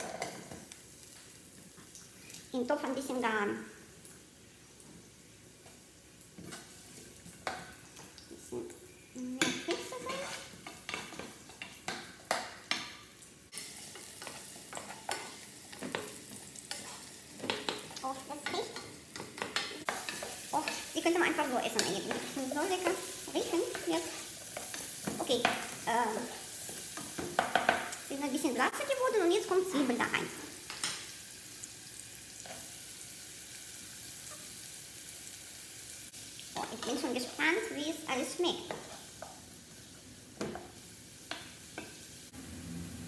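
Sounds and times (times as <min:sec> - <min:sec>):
carrots sizzling in oil: 0:00.0 - 0:43.0
spoon scraping pot: 0:09.6 - 0:11.3.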